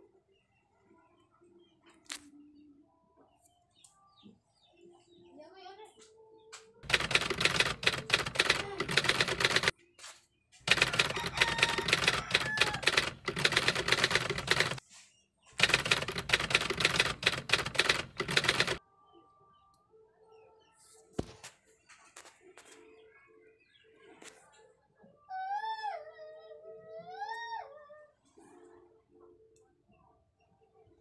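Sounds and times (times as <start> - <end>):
typewriter key clatter: 6.8 - 9.7, 10.7 - 14.8, 15.6 - 18.8.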